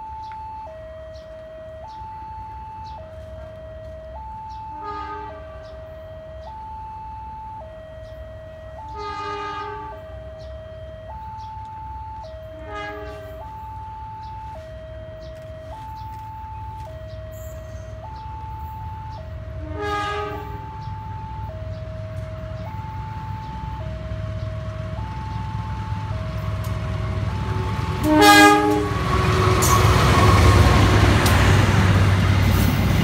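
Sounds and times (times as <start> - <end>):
level crossing two-tone alarm: 0.0 - 31.9
locomotive horn: 4.6 - 6.0, 8.8 - 10.3, 12.5 - 13.8, 19.4 - 21.4, 25.7 - 32.0.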